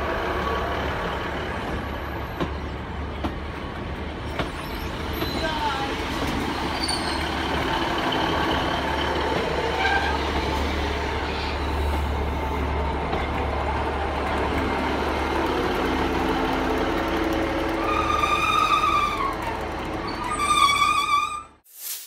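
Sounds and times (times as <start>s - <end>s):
diesel train engine hum: 0.0s - 21.3s
train wheel noise: 0.0s - 21.4s
high brake squeal: 6.7s - 7.4s, 20.1s - 21.6s.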